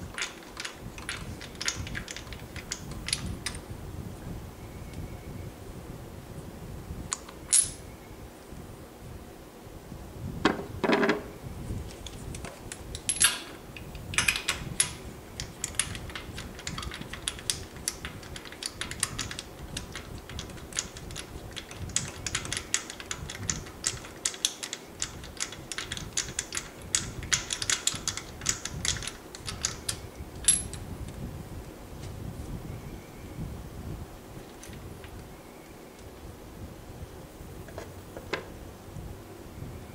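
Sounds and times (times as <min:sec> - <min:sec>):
metal clinks of socket and plugs: 0:07.1 - 0:07.8, 0:12.9 - 0:19.9, 0:23.9 - 0:30.8.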